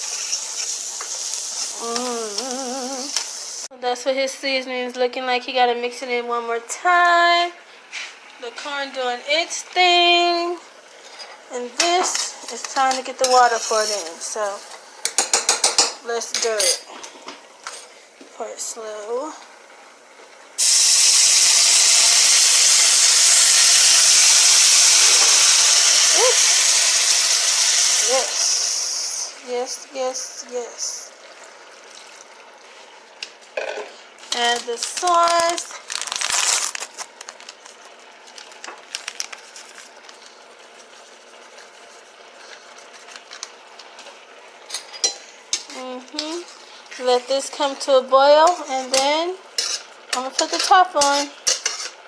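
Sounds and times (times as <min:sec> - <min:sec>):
water sizzling in hot skillet: 0:00.0 - 0:03.7, 0:18.5 - 0:52.0.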